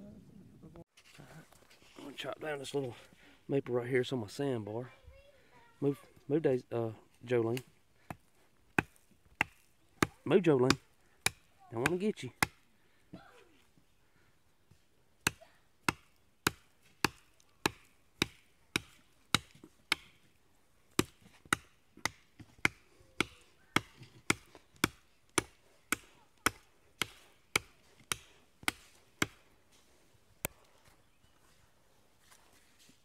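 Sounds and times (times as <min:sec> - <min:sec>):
blade chopping a sapling: 0:08.1 - 0:12.6, 0:15.2 - 0:29.5.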